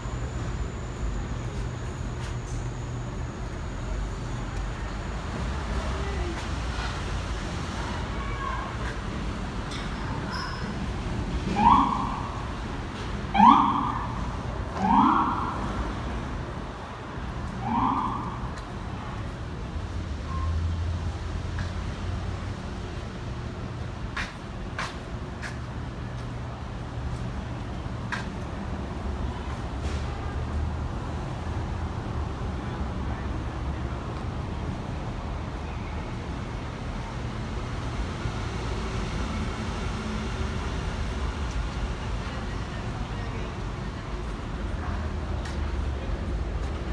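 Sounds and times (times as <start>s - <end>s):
low traffic rumble: 0.0s - 46.9s
siren whoops: 11.5s - 12.4s, 13.3s - 14.2s, 14.8s - 15.6s.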